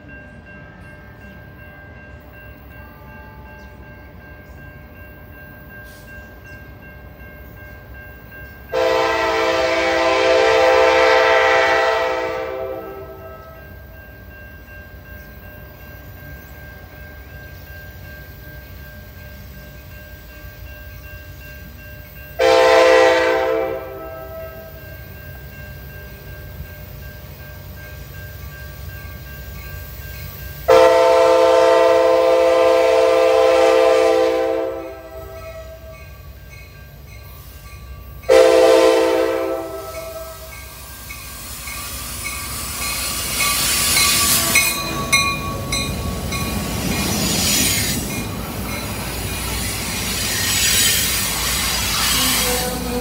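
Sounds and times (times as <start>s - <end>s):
train rumbling past: 0.0s - 53.0s
train horn blasts: 8.7s - 13.6s, 22.4s - 24.8s, 30.7s - 36.0s, 38.3s - 40.6s, 51.7s - 53.0s.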